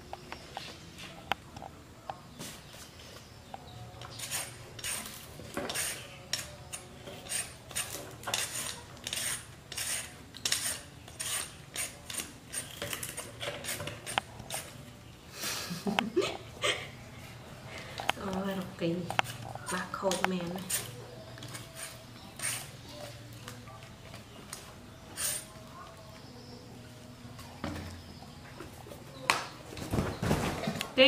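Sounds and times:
peeler scraping fruit skin: 4.0 - 14.8, 19.0 - 23.1, 24.5 - 25.7.

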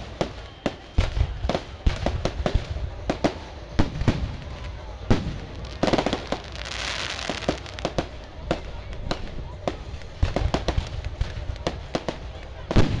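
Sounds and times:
firework bangs: 0.0 - 13.0
firework hissing: 5.1 - 8.3.

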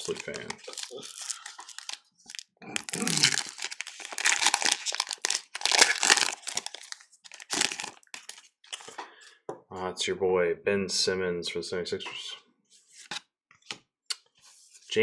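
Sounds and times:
foil wrapper crinkling and tearing: 0.0 - 8.9.

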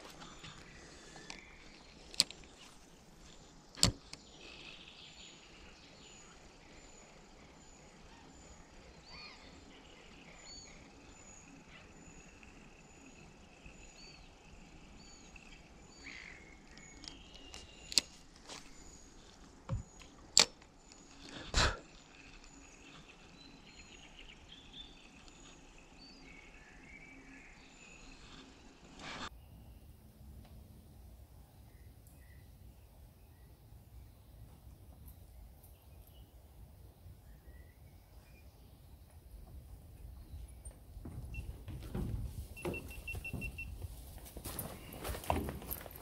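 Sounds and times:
high chirping: 40.0 - 46.0.

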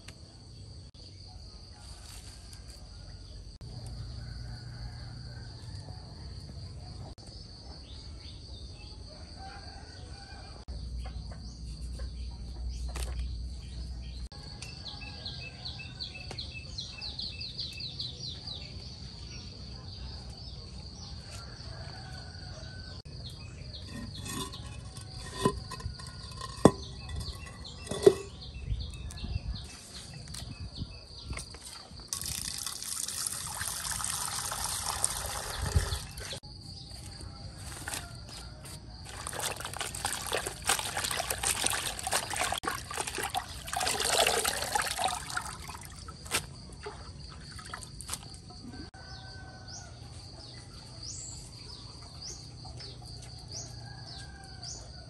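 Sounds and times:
tap water running into plastic basin: 32.1 - 36.4, 39.1 - 46.2.

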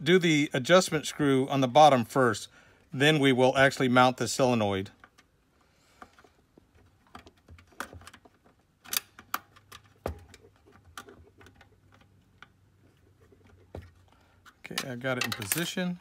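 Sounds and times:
metal parts clicking on metal frame: 14.5 - 16.0.

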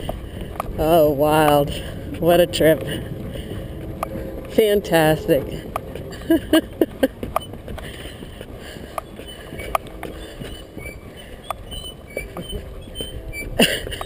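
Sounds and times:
footsteps on wooden bridge: 0.0 - 14.0
voices: 0.7 - 7.1
wooden creaks: 5.4 - 14.0.

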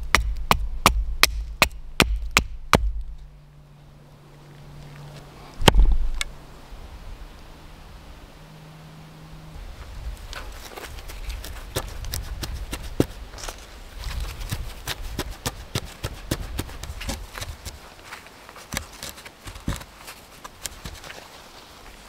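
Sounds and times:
gloved hands tapping and scraping logs: 0.0 - 3.3, 10.2 - 22.0.

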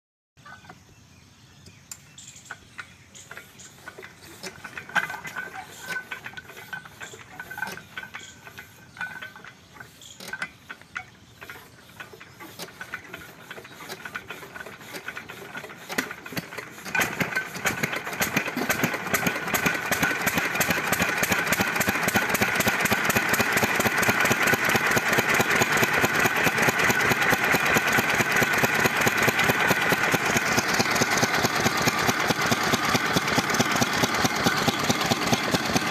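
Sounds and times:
flywheel hand-cranking clanking: 1.9 - 35.9
diesel engine knocking: 10.7 - 35.9.

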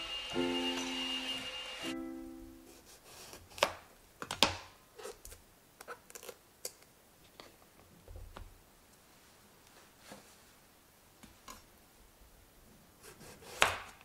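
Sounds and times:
piano music: 0.0 - 2.8.

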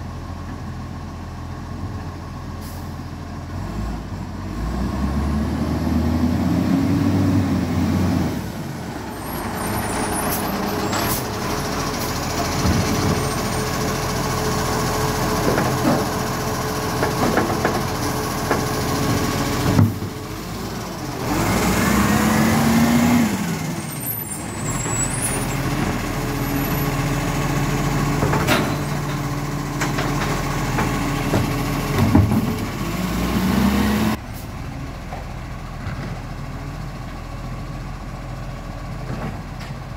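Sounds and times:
garbage truck diesel engine revving: 3.5 - 34.8.

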